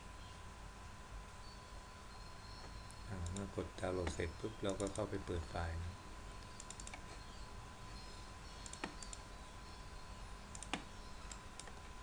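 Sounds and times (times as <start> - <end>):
faint hum and hiss: 0.0 - 12.0
mouse button clicks: 8.6 - 9.2.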